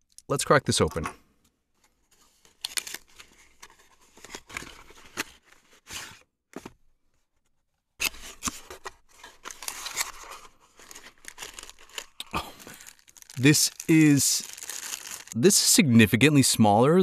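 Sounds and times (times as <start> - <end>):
cardboard scraping and rustling: 8.0 - 12.2.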